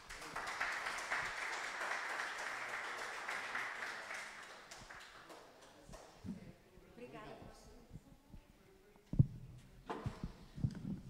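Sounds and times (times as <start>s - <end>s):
small audience applauding: 0.0s - 6.2s.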